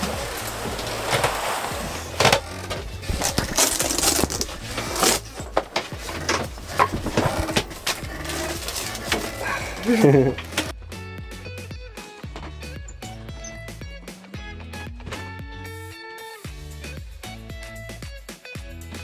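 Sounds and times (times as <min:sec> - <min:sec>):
fabric rustling: 0:00.0 - 0:10.4.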